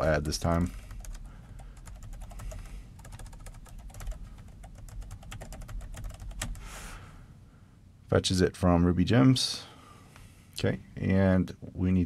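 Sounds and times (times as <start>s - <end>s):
computer keyboard typing: 0.0s - 6.7s.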